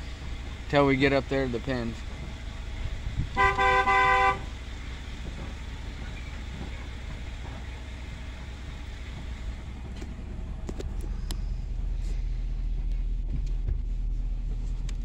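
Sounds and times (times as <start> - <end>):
truck engine rumbling: 0.0 - 15.0
truck horn blast: 3.3 - 4.6.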